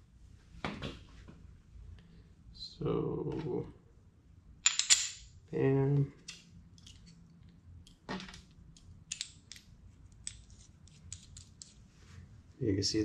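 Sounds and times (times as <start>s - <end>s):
small metal parts clicking: 8.7s - 11.8s.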